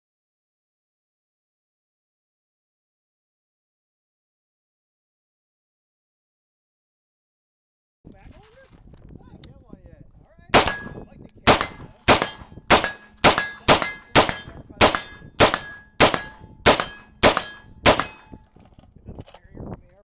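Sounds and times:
rifle shots: 10.6s - 18.4s.

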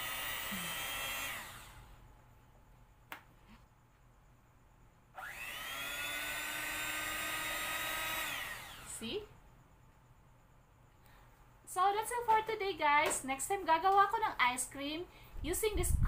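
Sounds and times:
electric hand mixer whining: 0.0s - 1.9s, 5.2s - 9.0s.

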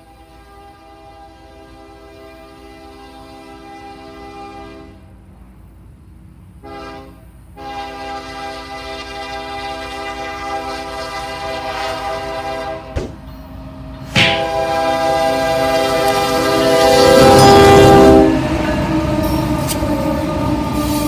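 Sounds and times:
locomotive air horn blasts: 0.0s - 5.1s, 6.6s - 13.0s, 14.0s - 18.6s
low rumble of train: 0.0s - 21.0s.

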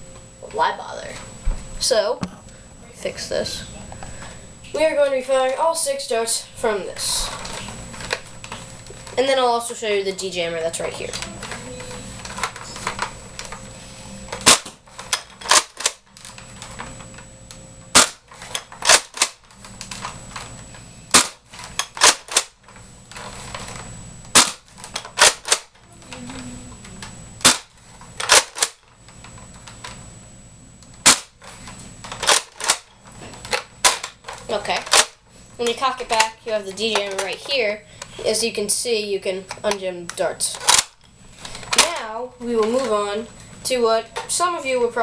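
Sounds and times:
toy blaster shot snapping: 14.4s - 16.0s, 17.9s - 19.4s, 21.1s - 22.6s, 24.3s - 25.8s, 27.4s - 28.8s, 31.0s - 31.4s, 32.2s - 32.9s, 33.5s - 34.2s, 34.8s - 35.2s, 40.6s - 41.0s.

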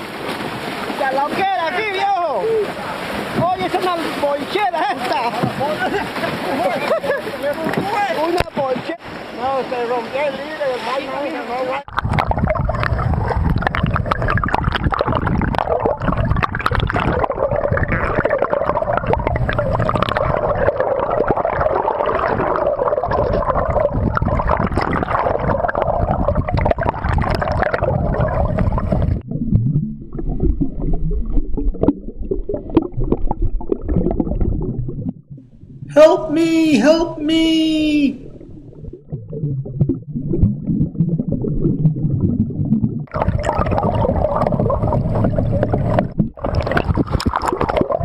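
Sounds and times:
underwater rushing and gurgling water: 0.0s - 36.0s, 37.8s - 48.0s
steady underwater drone: 38.2s - 46.8s.

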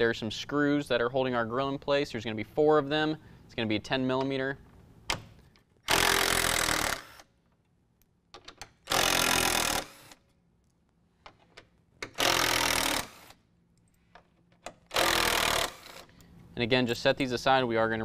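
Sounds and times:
cordless driver spinning out screws: 5.9s - 7.3s, 8.9s - 10.2s, 12.2s - 13.4s, 14.9s - 16.1s.

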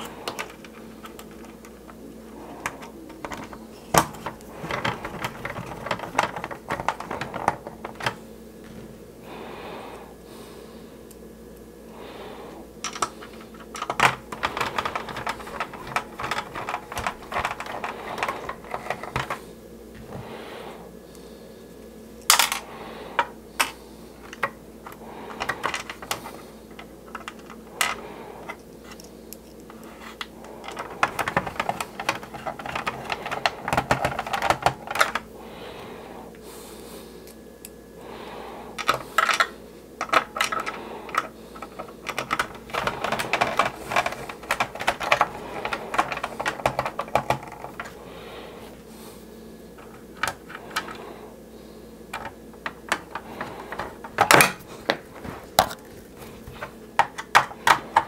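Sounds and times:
plastic rattles: 0.0s - 8.8s, 12.8s - 19.4s, 23.2s - 29.0s, 29.7s - 35.3s, 38.8s - 48.0s, 49.8s - 51.0s, 52.1s - 58.0s.

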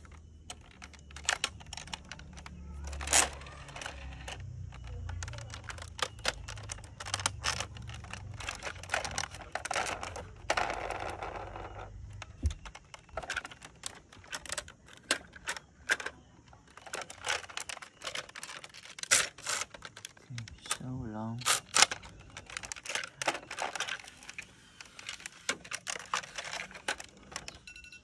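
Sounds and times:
plastic toy clicks and taps: 0.4s - 10.2s.

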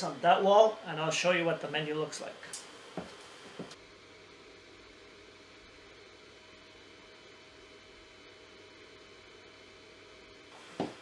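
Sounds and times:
projector cooling fan hissing: 0.0s - 11.0s.

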